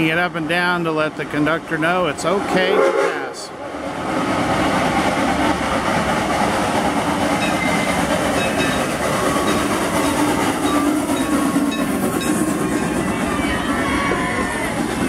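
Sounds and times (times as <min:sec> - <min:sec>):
steam locomotive rumbling past: 0:00.0 - 0:15.0
wheels clattering on rails: 0:04.0 - 0:15.0.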